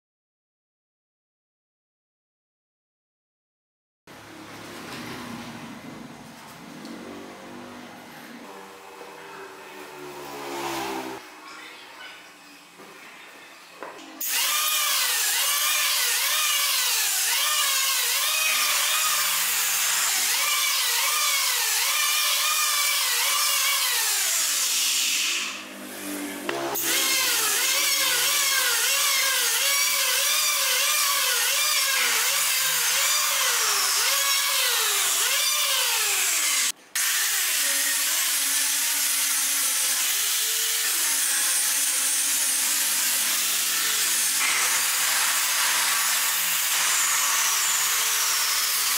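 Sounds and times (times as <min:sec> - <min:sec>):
angle grinder sanding wood: 0:14.3 - 0:48.9
electric hand planer shaving wood: 0:14.3 - 0:48.9.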